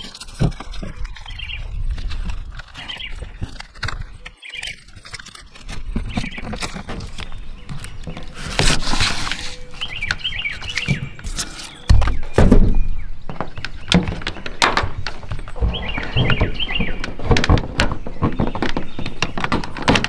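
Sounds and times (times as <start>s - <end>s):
hands handling tape: 0.0s - 12.5s
rustling and clicks: 0.0s - 12.5s, 13.2s - 20.0s
birds chirping: 0.0s - 20.0s.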